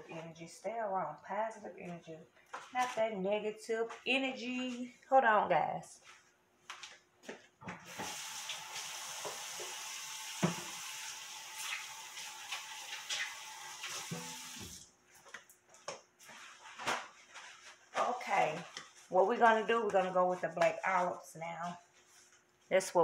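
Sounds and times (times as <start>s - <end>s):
tap running into a sink: 7.9s - 14.8s.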